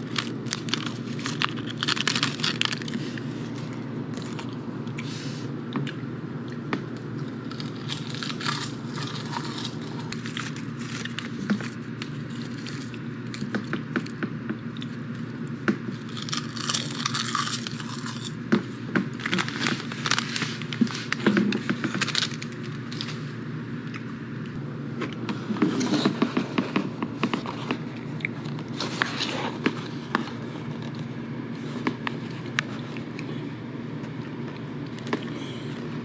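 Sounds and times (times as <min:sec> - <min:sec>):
crisp snack crunching: 0:00.0 - 0:05.1, 0:05.8 - 0:24.6
steady low hum: 0:00.0 - 0:36.0.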